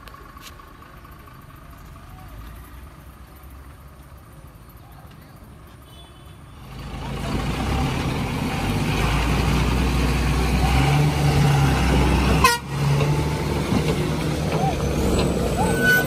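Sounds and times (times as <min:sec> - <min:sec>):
diesel truck driving past: 0:06.6 - 0:16.0.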